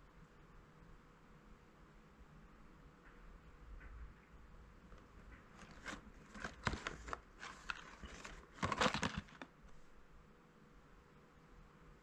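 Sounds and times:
cardboard box rustling and clicking: 0:05.5 - 0:09.5.

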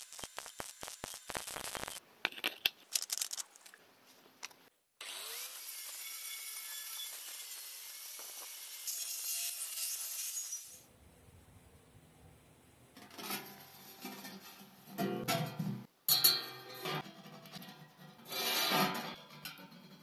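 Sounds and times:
stick welding crackling: 0:00.0 - 0:02.0, 0:02.6 - 0:03.8, 0:05.5 - 0:09.0.

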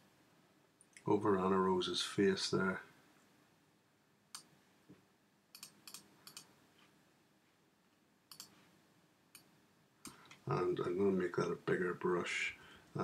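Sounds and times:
computer mouse clicks: 0:05.5 - 0:06.5, 0:08.3 - 0:08.6.

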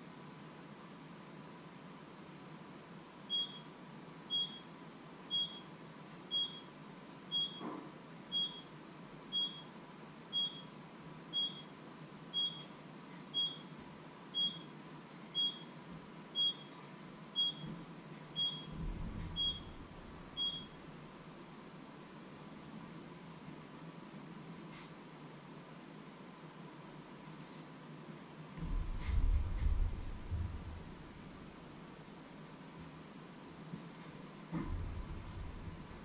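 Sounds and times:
appliance alarm beeping: 0:03.3 - 0:03.7, 0:04.3 - 0:04.7, 0:05.3 - 0:05.7, 0:06.3 - 0:06.7, 0:07.3 - 0:07.6, 0:08.3 - 0:08.7, 0:09.3 - 0:09.7, 0:10.3 - 0:11.7, 0:12.3 - 0:14.7, 0:15.4 - 0:15.8, 0:16.4 - 0:16.8, 0:17.4 - 0:17.7, 0:18.4 - 0:20.8
low thuds of movement: 0:18.7 - 0:19.7, 0:28.6 - 0:31.1, 0:34.5 - 0:36.0.

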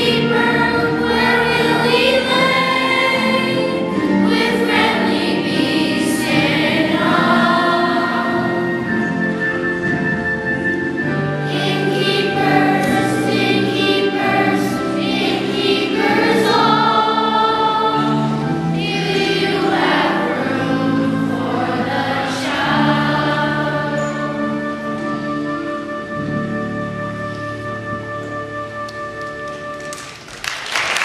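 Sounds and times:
children's choir singing: 0:00.0 - 0:27.8.

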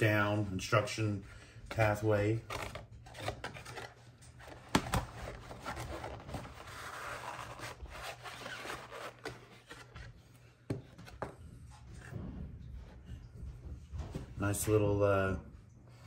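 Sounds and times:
cardboard box flaps rubbing: 0:04.7 - 0:10.1.

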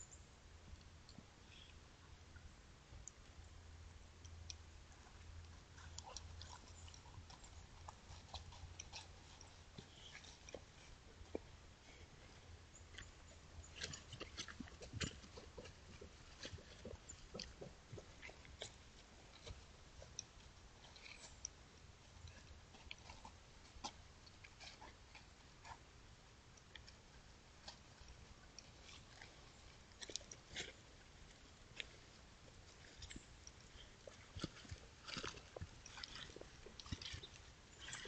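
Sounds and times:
dogs walking on dry leaves: 0:27.8 - 0:38.0.

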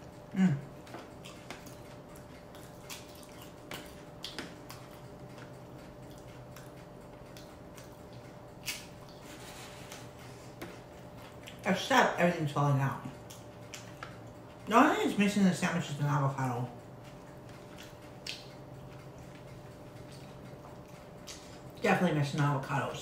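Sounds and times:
person chewing food: 0:00.0 - 0:11.7, 0:13.2 - 0:14.7, 0:16.9 - 0:21.8
faint steady hum: 0:00.0 - 0:23.0.

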